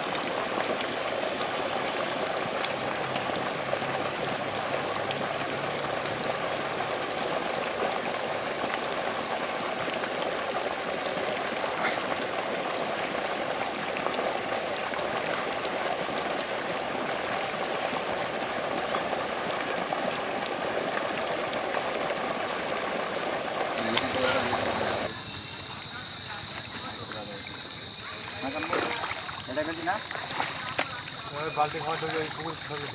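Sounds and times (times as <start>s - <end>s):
fish splashing at water surface: 0.0s - 32.9s.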